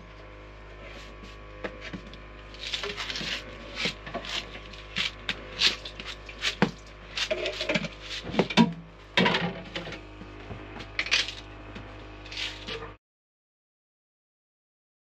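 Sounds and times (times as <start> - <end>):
plastic jar rolling and scraping: 5.6 - 8.6.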